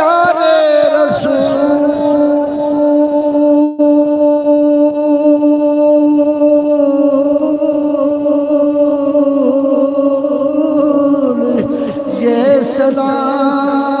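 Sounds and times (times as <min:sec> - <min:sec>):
man chanting long note: 0:00.0 - 0:14.0.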